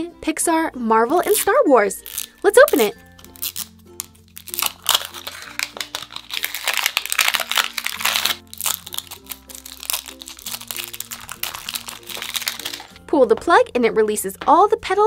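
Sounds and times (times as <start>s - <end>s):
light background music: 0.0s - 15.0s
plastic wrapper crackling and tearing: 1.2s - 13.0s.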